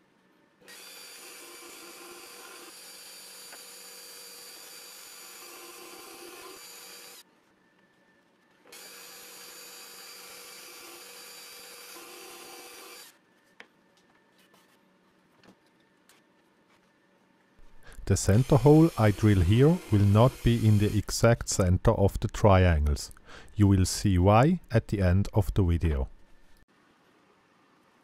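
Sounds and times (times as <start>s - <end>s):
drill press drilling plywood: 0.7s - 7.2s, 17.6s - 21.0s.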